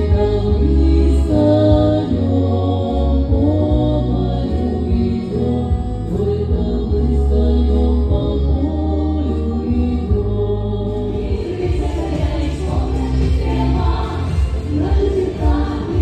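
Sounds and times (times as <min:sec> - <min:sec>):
musical accompaniment with bass: 0:00.0 - 0:16.0
women's ensemble singing: 0:00.0 - 0:16.0.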